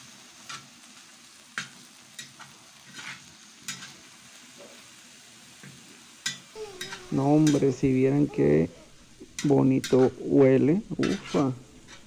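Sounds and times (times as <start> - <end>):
seafood sizzling in oil: 0.0 - 12.0
metal spatula scraping pan: 2.2 - 4.1, 6.3 - 12.0.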